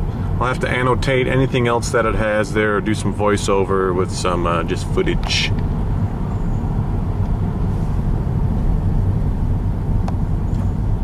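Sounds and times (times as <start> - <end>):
car engine rumble: 0.0 - 11.0.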